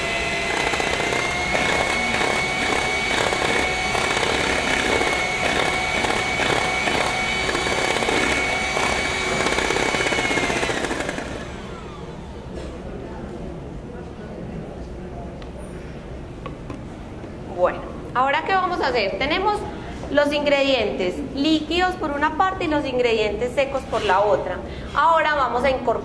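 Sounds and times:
electric hand mixer whining: 0:00.0 - 0:12.3.

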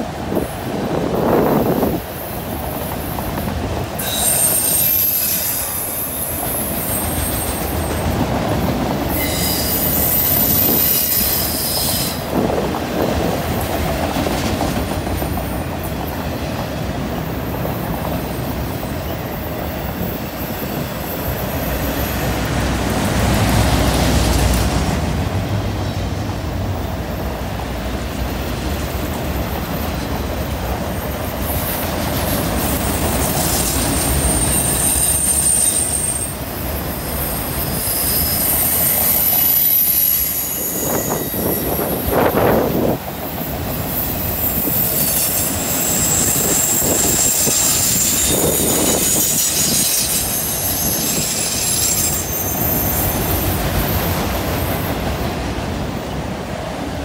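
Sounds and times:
train wheels rumbling on rail: 0:00.0 - 0:57.0
high-pitched wheel squeal: 0:04.0 - 0:08.0, 0:09.1 - 0:12.3, 0:33.3 - 0:54.8.

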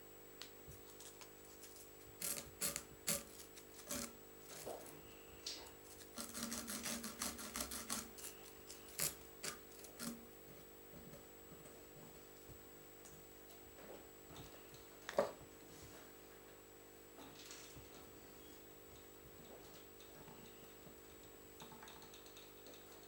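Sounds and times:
steady low hum: 0:00.0 - 0:13.4
small clicks and scratches: 0:00.7 - 0:10.2.

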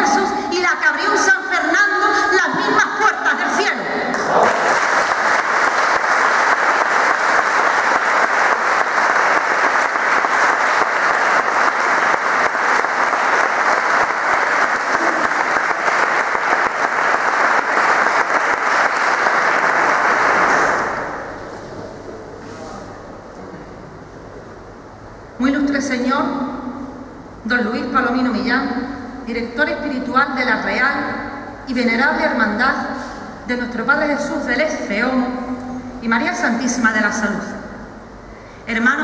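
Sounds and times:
audience applauding: 0:04.1 - 0:21.4.

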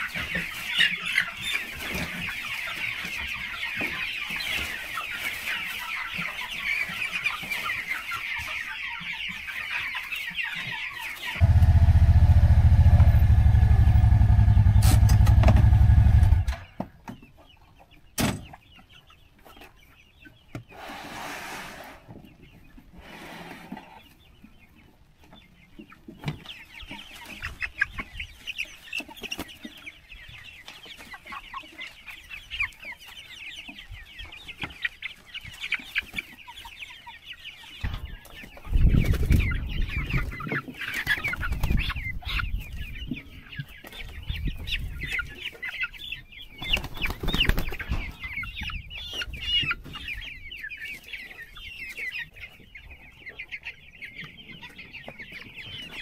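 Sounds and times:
chicks peeping and chirping: 0:00.0 - 0:56.0
low rumble: 0:11.4 - 0:16.6.

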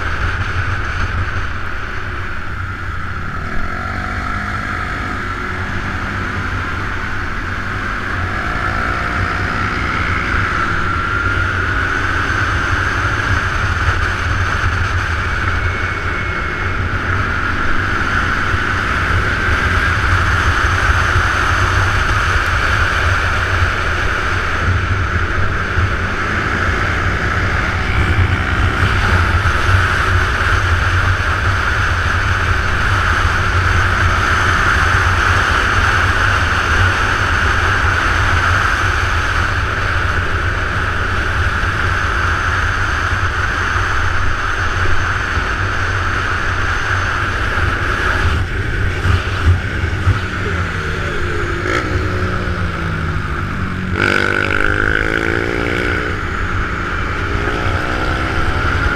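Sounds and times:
motorbike engine drone: 0:00.0 - 0:58.9
passing engine: 0:00.0 - 0:58.9.

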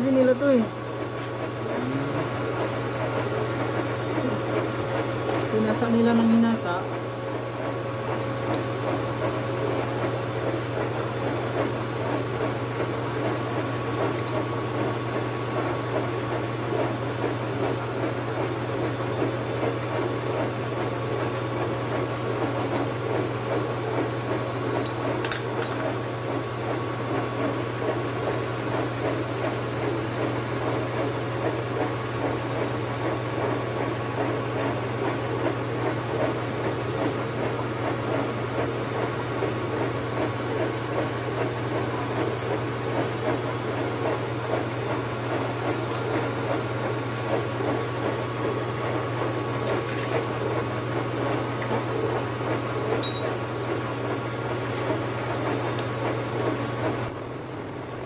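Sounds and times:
motor hum: 0:00.0 - 0:21.8, 0:41.8 - 0:58.0.

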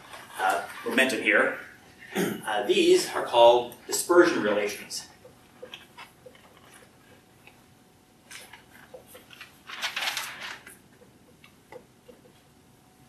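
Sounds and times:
marker writing on whiteboard: 0:05.1 - 0:07.6.

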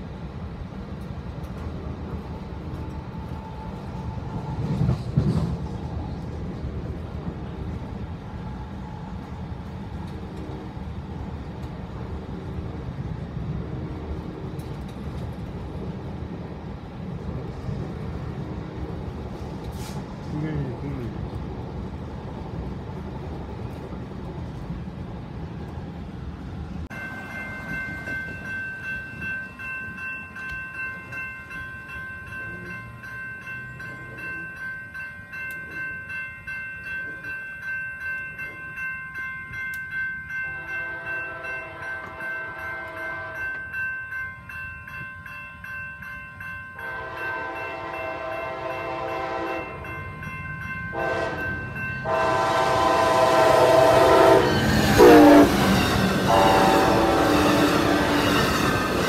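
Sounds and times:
railroad crossing bell ringing: 0:01.5 - 0:05.6, 0:26.8 - 0:59.0
train horn blasts: 0:40.6 - 0:43.6, 0:46.8 - 0:49.8, 0:50.9 - 0:58.4.

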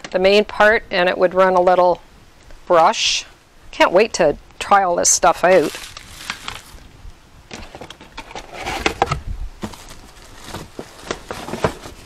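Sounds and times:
packaging rustling: 0:05.4 - 0:06.9, 0:07.6 - 0:12.0
plastic parts clicking and knocking: 0:07.5 - 0:12.0.

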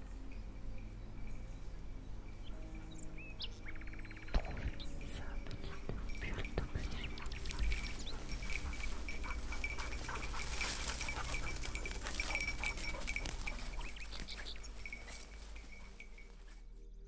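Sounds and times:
dog collar bell jingling: 0:04.9 - 0:16.6.

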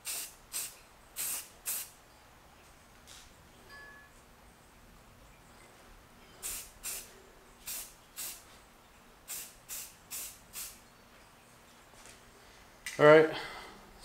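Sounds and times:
aerosol spray can hissing: 0:00.0 - 0:01.9, 0:06.4 - 0:08.4, 0:09.3 - 0:10.8.

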